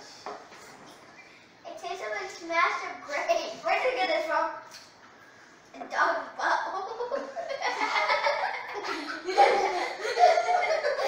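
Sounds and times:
children laughing and giggling: 6.8s - 11.0s.

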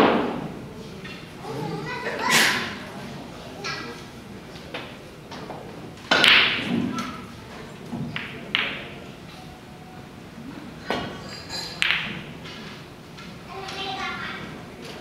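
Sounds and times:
cue tip striking cue ball: 4.8s - 7.2s, 8.1s - 9.0s, 11.8s - 12.3s.

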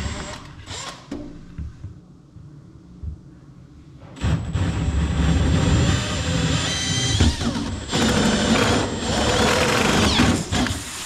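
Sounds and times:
cordless drill cutting drywall: 4.5s - 10.9s.

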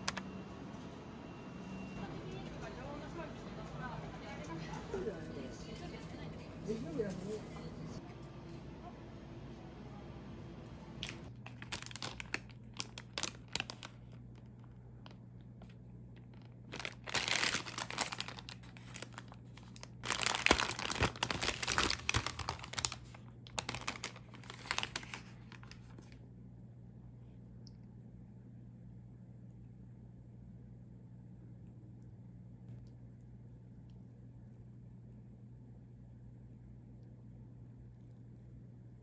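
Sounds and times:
paper bag crinkling: 11.0s - 26.2s
paper tearing: 16.8s - 26.0s.

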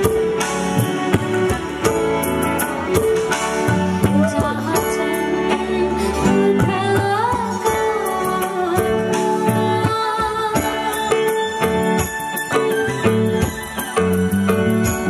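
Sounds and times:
woman singing into a microphone: 0.0s - 1.9s, 3.9s - 12.8s
band accompaniment: 0.0s - 15.0s
percussion strokes: 0.0s - 15.0s.

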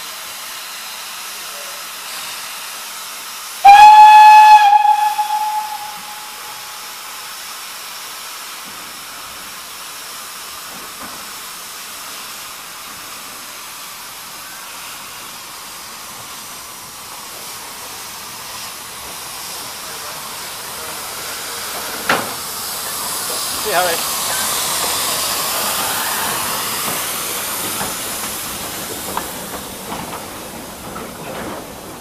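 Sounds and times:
escaping steam hiss: 0.0s - 32.0s
steam locomotive whistle blast: 3.6s - 7.4s.

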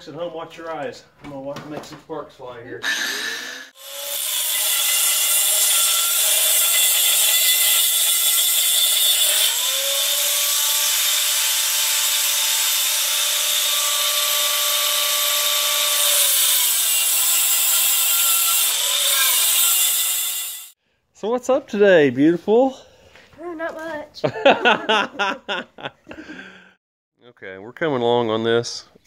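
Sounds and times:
angle grinder cutting steel: 2.8s - 20.8s.

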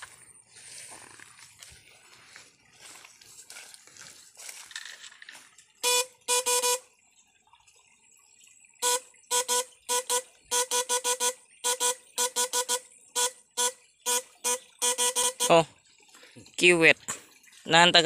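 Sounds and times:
electric fishing rig buzzing: 8.8s - 15.6s.

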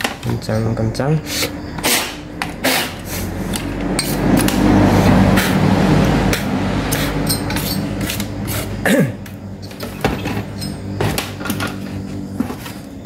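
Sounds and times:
low droning hum: 0.0s - 13.0s
rushing noise: 1.4s - 8.8s.

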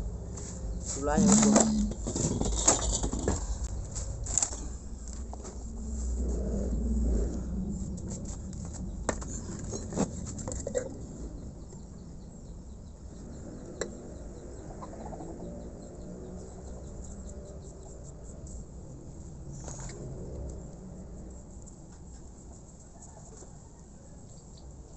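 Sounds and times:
faint bird chirping: 11.0s - 18.4s.

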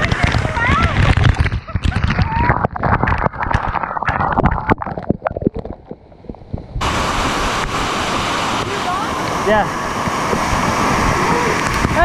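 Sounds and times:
water splashing close: 0.0s - 12.0s
waterfall rushing: 6.8s - 12.0s.

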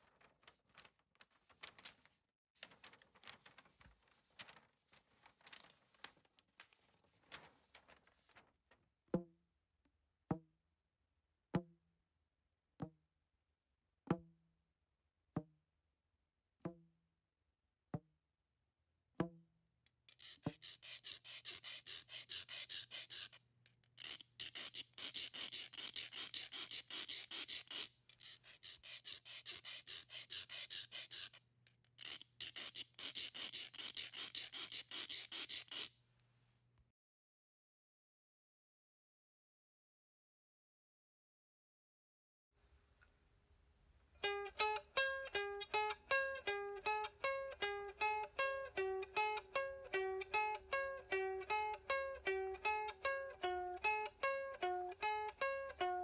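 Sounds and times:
scratchy rasping: 20.1s - 31.4s, 32.0s - 36.0s.

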